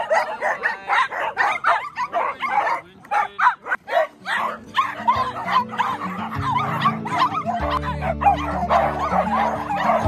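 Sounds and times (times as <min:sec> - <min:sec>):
small dogs barking and yipping: 0:00.0 - 0:10.0
background music: 0:03.8 - 0:10.0.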